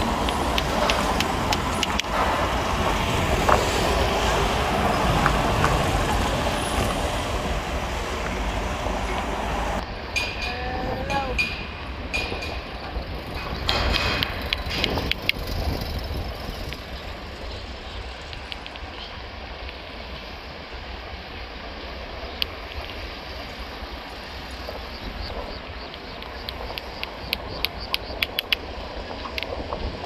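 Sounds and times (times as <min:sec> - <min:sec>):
sharp clicks: 0:00.0 - 0:02.2, 0:13.3 - 0:16.9, 0:18.3 - 0:18.9, 0:25.2 - 0:29.6
vehicle rumble: 0:00.0 - 0:30.0.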